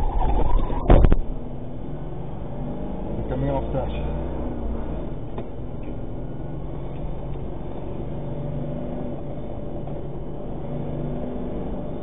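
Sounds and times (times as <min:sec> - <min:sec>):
truck engine and road noise: 0:00.0 - 0:12.0.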